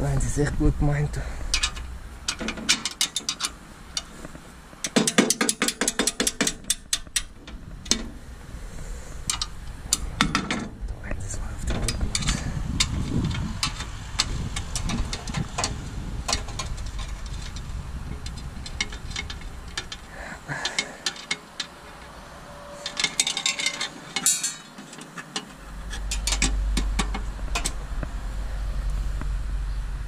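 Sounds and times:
hand tools clicking on metal: 1.5s - 8.2s, 9.2s - 10.7s, 11.7s - 27.8s
low rumble: 7.0s - 20.6s, 21.7s - 23.9s, 25.6s - 30.0s.

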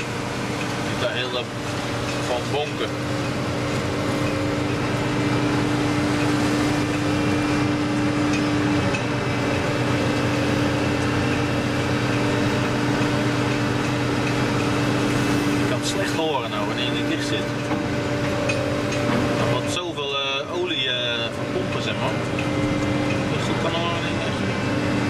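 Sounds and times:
crane engine humming: 0.0s - 25.0s.

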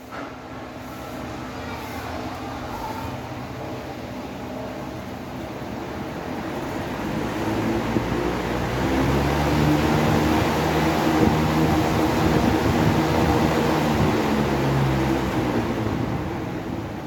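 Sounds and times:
electric fan running: 0.0s - 17.0s.

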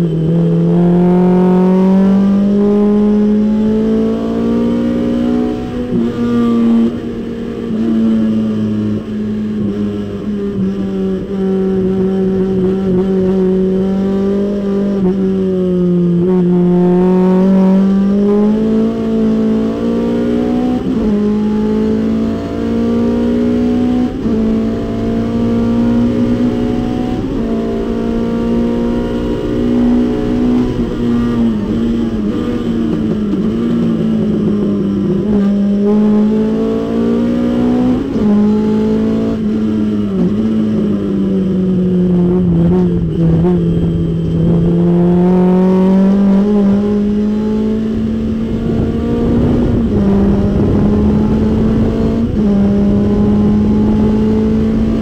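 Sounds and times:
race car engine at speed: 0.0s - 55.0s.

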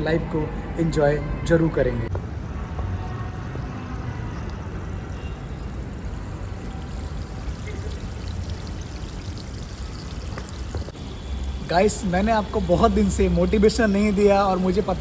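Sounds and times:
water rushing in a pool: 5.9s - 10.9s.

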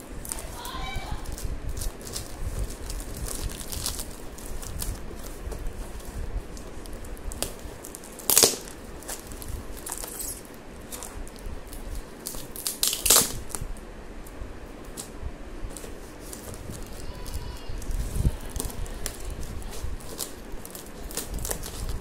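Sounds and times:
paper and tape crinkling: 0.0s - 13.7s, 14.8s - 22.0s
paper tearing: 0.3s - 11.2s.

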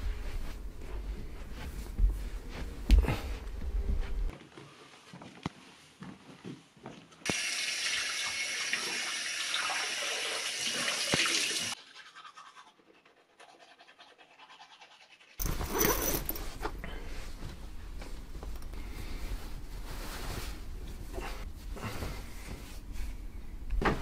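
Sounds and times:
water running from tap: 7.3s - 11.8s
toothbrush scrubbing teeth: 11.8s - 15.4s.

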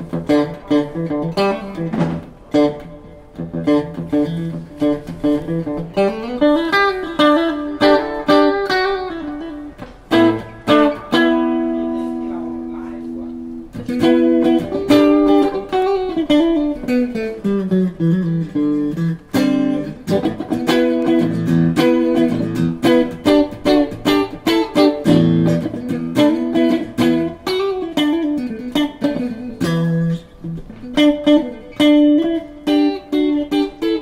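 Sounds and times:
electric guitar melodic lines: 0.0s - 34.0s.

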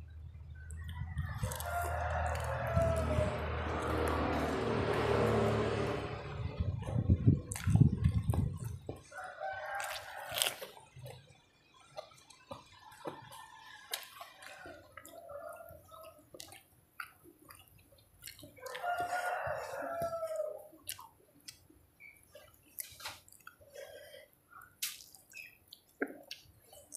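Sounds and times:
low rumble: 0.0s - 8.9s
person eating with fingers: 0.6s - 5.3s, 7.1s - 11.2s, 11.8s - 26.9s
rooster crowing: 0.9s - 6.4s, 9.0s - 10.7s, 13.0s - 16.2s, 18.6s - 20.7s.

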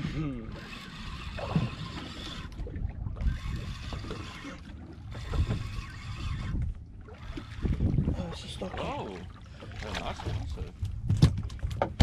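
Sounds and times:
water lapping against boat hull: 0.0s - 12.0s
wind buffeting microphone: 2.6s - 4.4s, 5.2s - 9.1s, 10.2s - 12.0s.

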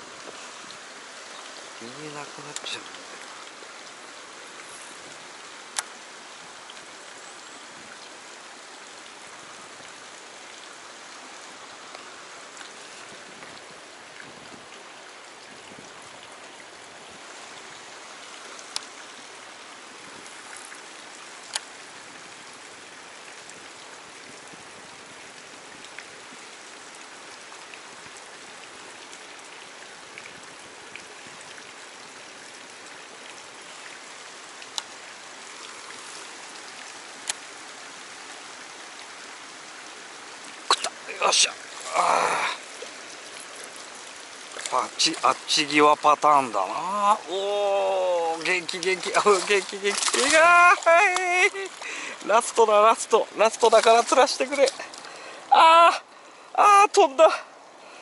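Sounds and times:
water hissing: 40.6s - 52.5s.

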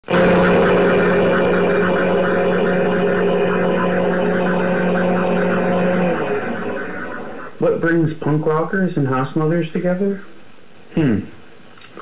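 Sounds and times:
vacuum cleaner running: 0.0s - 7.6s.

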